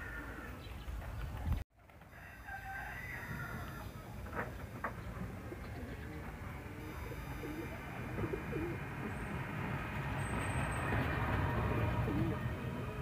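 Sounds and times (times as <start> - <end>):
birds giving low wavering calls: 3.4 - 12.6.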